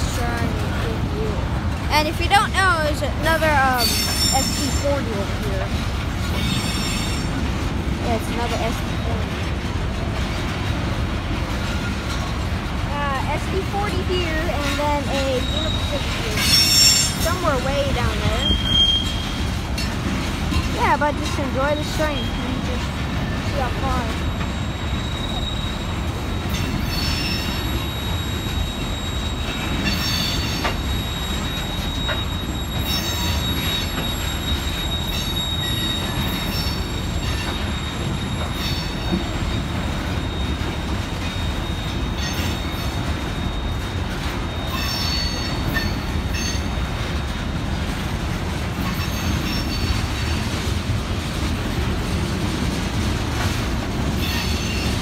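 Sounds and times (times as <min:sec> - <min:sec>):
train wheels rumbling on rail: 0:00.0 - 0:55.0
high wheel squeal: 0:03.2 - 0:05.2, 0:06.3 - 0:07.4, 0:14.2 - 0:20.0, 0:21.6 - 0:47.4, 0:48.8 - 0:50.5, 0:54.1 - 0:55.0
thin high squeal: 0:03.7 - 0:05.0, 0:24.4 - 0:46.7.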